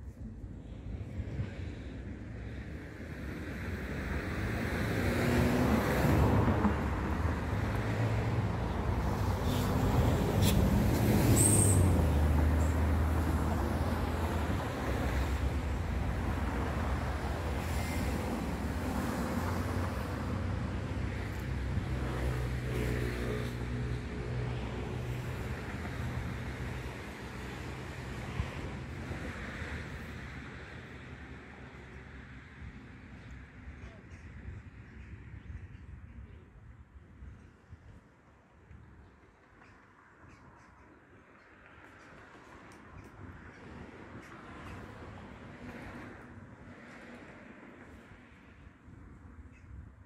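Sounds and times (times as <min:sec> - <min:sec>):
vehicles passing on road: 0:00.0 - 0:50.0.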